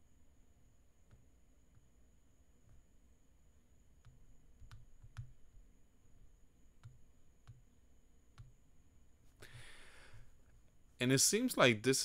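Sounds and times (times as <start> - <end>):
computer mouse clicks: 4.0 - 5.6, 6.8 - 7.7, 8.3 - 8.6
person breathing out: 9.4 - 10.4.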